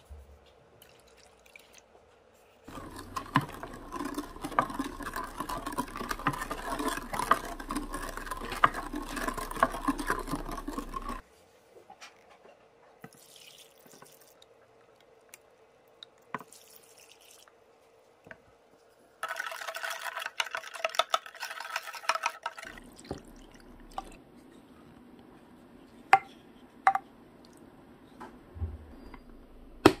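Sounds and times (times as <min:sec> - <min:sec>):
wooden spatula stirring in glass dish: 0:02.6 - 0:11.2, 0:19.2 - 0:24.2.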